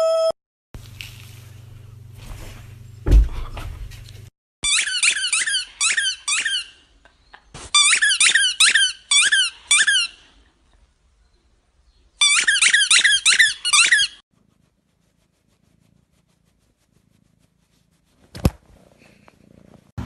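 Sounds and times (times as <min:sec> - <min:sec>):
squeaky ball toy squeaking: 0:04.6 - 0:06.8, 0:07.7 - 0:10.2, 0:12.2 - 0:14.2.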